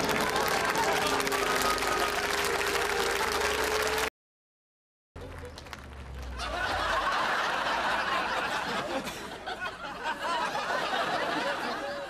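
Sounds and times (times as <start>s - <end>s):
audience laughing: 6.4s - 12.0s.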